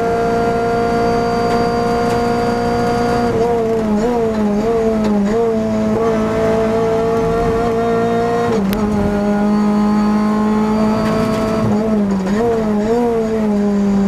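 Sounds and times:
race car engine: 0.0s - 14.0s
gear shift click: 8.5s - 9.1s.

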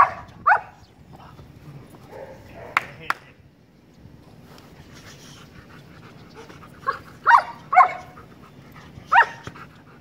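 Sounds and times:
dog barking: 2.1s - 2.9s, 7.2s - 8.1s, 9.1s - 9.4s.

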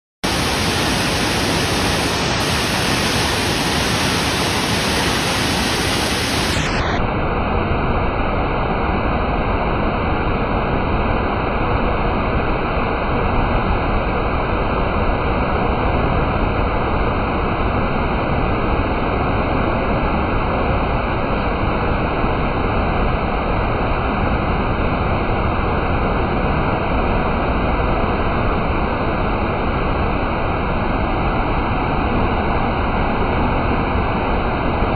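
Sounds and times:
waterfall rushing: 0.2s - 7.0s.

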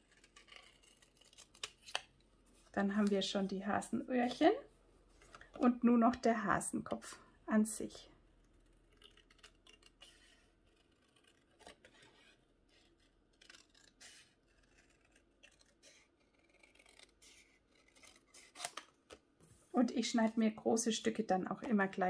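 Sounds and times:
scissors snipping cardstock: 9.0s - 18.8s.

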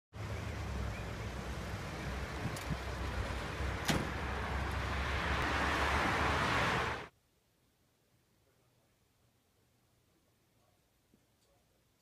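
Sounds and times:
street traffic rumble: 0.1s - 7.1s
vehicle passing: 0.2s - 7.1s.

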